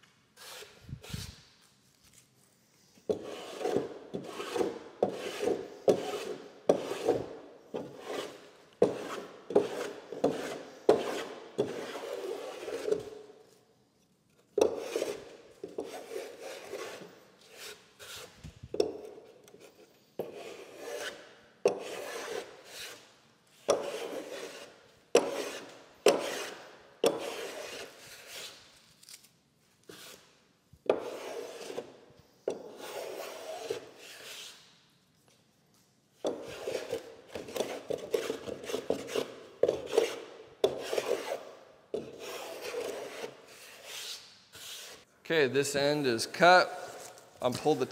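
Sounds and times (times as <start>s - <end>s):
plane shaving wood: 3.2s - 7.2s, 8.0s - 13.0s, 20.3s - 23.0s, 23.8s - 28.4s, 42.0s - 45.0s.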